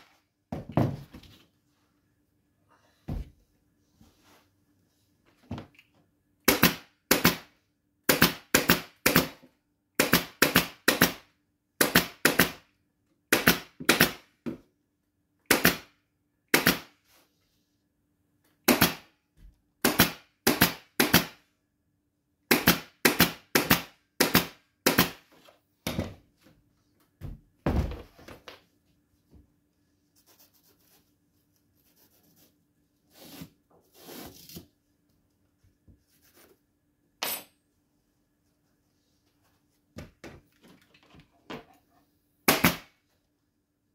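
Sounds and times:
soft handling sounds: 0:37.8 - 0:42.2.

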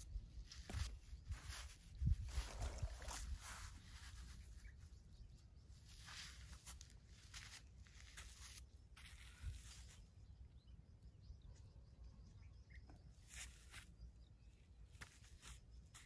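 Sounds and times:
soft rustles: 0:00.4 - 0:05.0.

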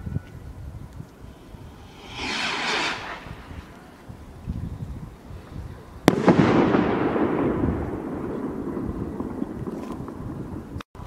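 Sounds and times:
firework tail: 0:01.1 - 0:05.4, 0:06.0 - 0:10.7
firework rocket bang: 0:01.2 - 0:04.4, 0:06.1 - 0:09.0.

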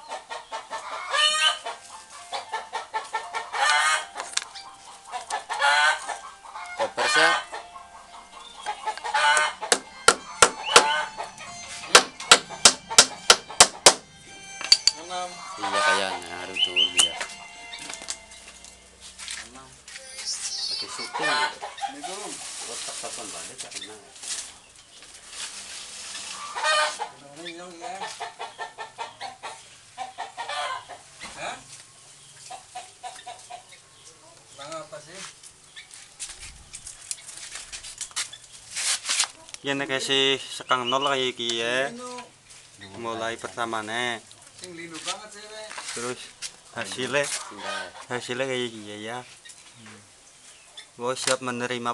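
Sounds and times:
fowl calling: 0:00.0 - 0:19.3, 0:20.0 - 0:24.0, 0:26.1 - 0:31.6, 0:39.3 - 0:41.4, 0:46.0 - 0:48.3
chickens clucking: 0:00.0 - 0:51.9
hammer blows: 0:09.6 - 0:15.1.

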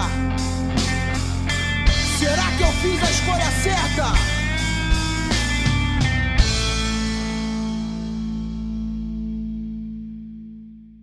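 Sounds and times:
sustained electric guitar chord: 0:04.4 - 0:11.0.

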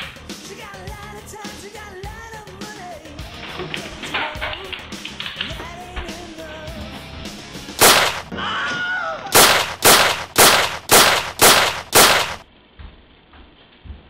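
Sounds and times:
gunshots: 0:07.8 - 0:08.3, 0:09.4 - 0:12.4.

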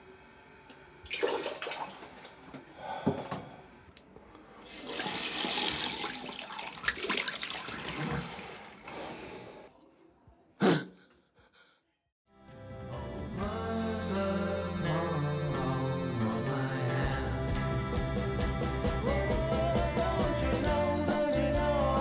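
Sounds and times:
tap water splashing into sink: 0:04.8 - 0:08.3.

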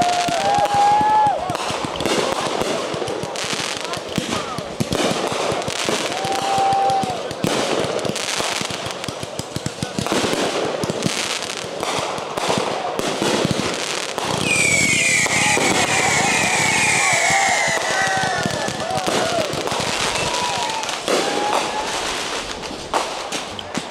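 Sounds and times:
fireworks crackling and popping: 0:00.0 - 0:23.9
high falling whistle: 0:14.4 - 0:18.1
people calling out: 0:14.5 - 0:22.1.

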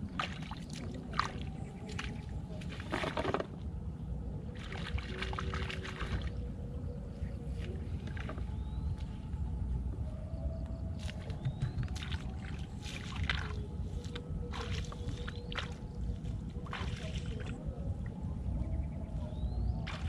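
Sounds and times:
wind buffeting microphone: 0:00.0 - 0:20.0.

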